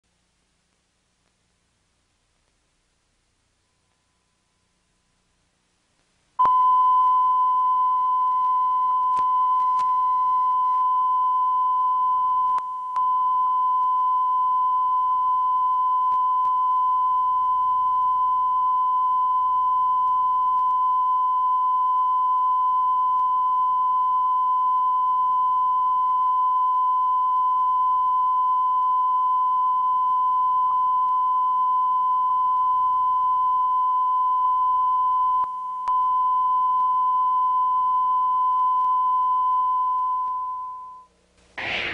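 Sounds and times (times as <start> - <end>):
pure sine test tone: 0.1 - 41.9.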